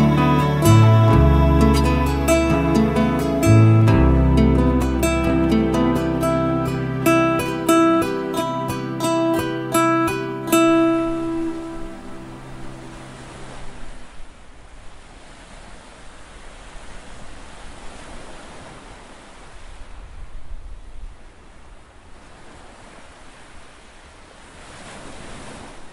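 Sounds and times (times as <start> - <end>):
acoustic guitar tune: 0.0 - 13.8.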